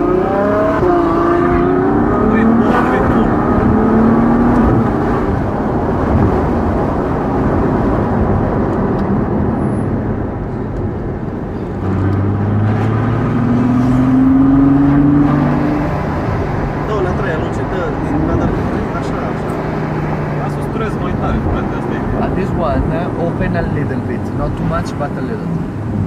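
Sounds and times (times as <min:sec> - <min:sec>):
car engine accelerating: 0:00.0 - 0:26.0
road and wind noise: 0:00.0 - 0:26.0.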